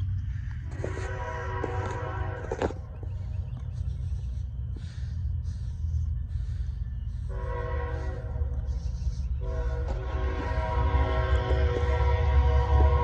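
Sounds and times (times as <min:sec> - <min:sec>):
steady low rumble: 0:00.0 - 0:13.0
locomotive air horn blasts: 0:00.7 - 0:02.9, 0:07.3 - 0:13.0.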